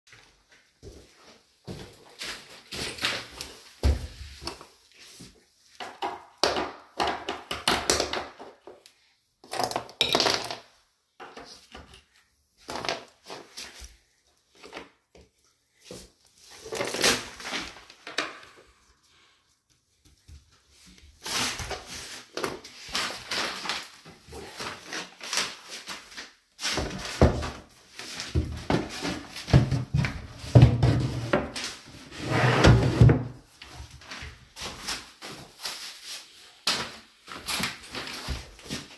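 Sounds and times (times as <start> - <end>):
cabinet panels knocking and scraping: 32.2 - 33.4.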